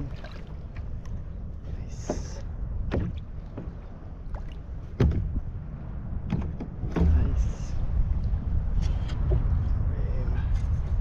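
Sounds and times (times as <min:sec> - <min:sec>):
low rumble: 0:00.0 - 0:11.0
water slapping against kayak hull: 0:01.9 - 0:05.6, 0:06.2 - 0:07.5.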